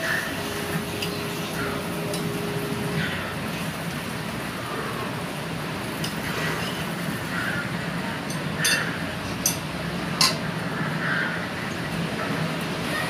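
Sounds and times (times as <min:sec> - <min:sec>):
metal utensils clinking on steel pot: 0:08.3 - 0:09.6, 0:10.2 - 0:10.4.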